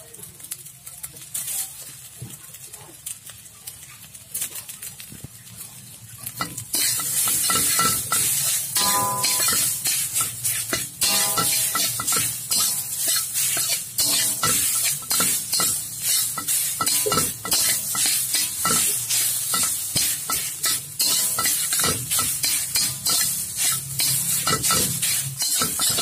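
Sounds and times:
rice sizzling in a pan: 0.0s - 26.0s
metal spatula scraping a pan: 6.2s - 26.0s
spatula knocking against pan: 10.7s - 12.8s.

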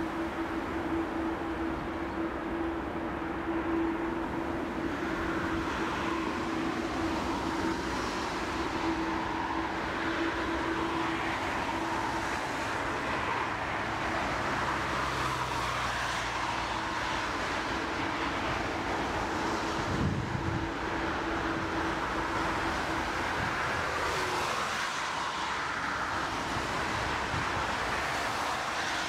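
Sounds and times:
jet engines rumbling: 0.0s - 29.0s.

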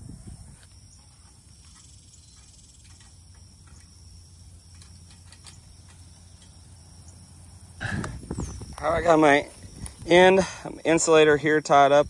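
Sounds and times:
fence wire clicking: 4.7s - 6.6s.

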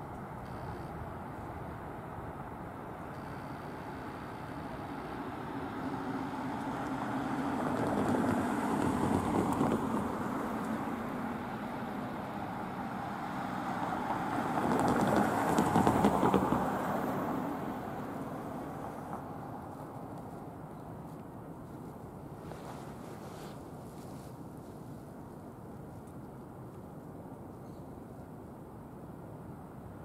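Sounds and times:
train clicks: 14.6s - 17.0s.

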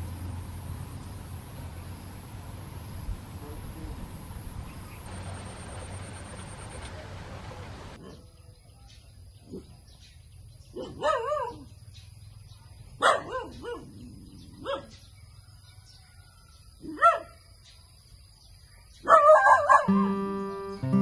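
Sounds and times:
dog barking and yelping: 10.8s - 11.7s, 13.0s - 15.0s, 16.8s - 17.3s, 19.0s - 20.0s
acoustic guitar music: 19.8s - 21.0s.

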